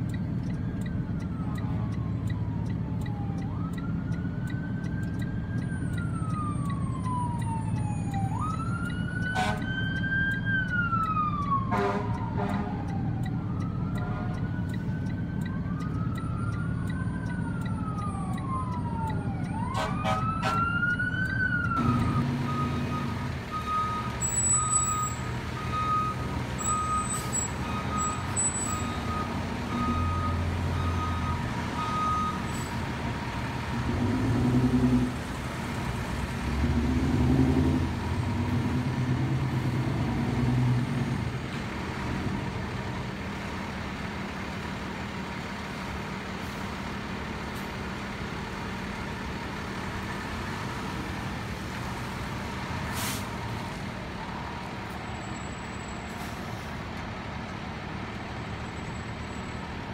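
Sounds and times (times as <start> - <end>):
reversing alarm beeping: 0.0 - 32.7
engine and traffic rumble: 0.0 - 59.9
fire truck siren wailing: 0.0 - 59.9
short horn blasts: 19.7 - 20.7.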